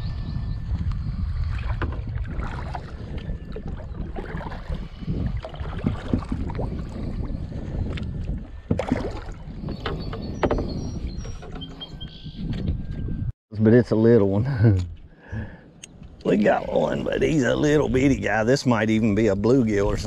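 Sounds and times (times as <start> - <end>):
wind and water rumble: 0.0 - 20.0
knocks from boat and gear: 8.7 - 13.0.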